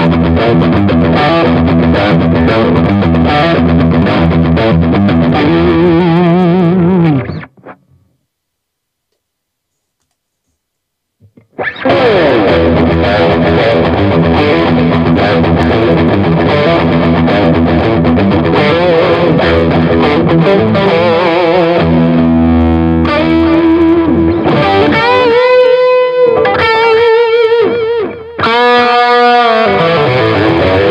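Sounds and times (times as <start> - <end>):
electric guitar through amplifier: 0.0 - 8.2, 11.2 - 30.9.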